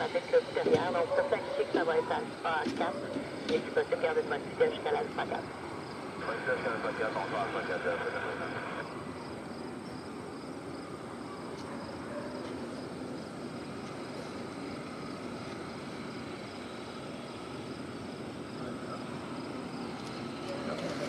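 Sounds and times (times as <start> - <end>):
distant engine rumble: 0.0 - 11.5
high pulsing insect trill: 3.2 - 12.0, 12.7 - 20.9.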